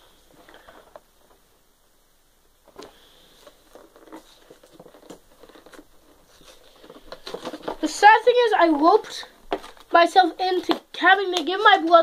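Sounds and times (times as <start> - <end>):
toy box clicks and rustles: 2.7 - 12.0.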